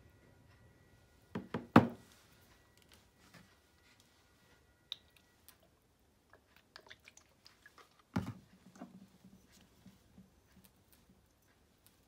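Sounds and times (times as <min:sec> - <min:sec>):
object knocking on counter: 0:01.4 - 0:02.0.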